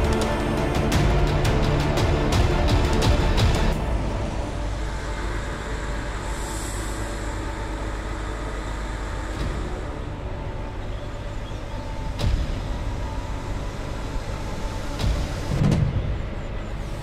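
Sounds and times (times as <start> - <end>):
diesel engine droning: 0.0 - 17.0.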